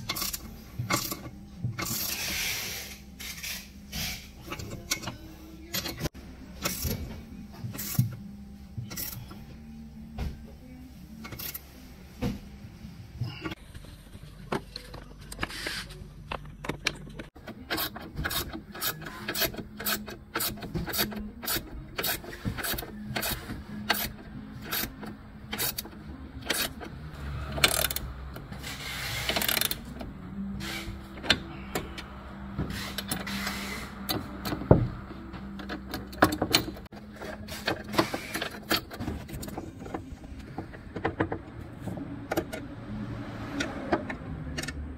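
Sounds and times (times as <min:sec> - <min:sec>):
ratchet wrench clicking: 0:00.0 - 0:06.8, 0:17.7 - 0:26.9, 0:27.5 - 0:28.1, 0:28.7 - 0:29.9.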